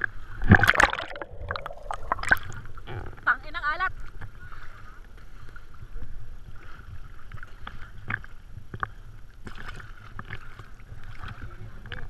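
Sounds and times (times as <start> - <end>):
sea water lapping: 0.0 - 12.0
water splashes: 0.0 - 12.0
low rumble: 0.4 - 4.4.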